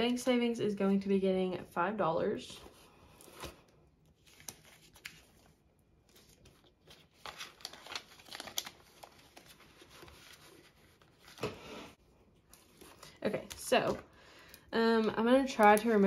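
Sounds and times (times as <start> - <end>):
plastic envelope crinkling: 3.2 - 11.5, 15.0 - 16.0.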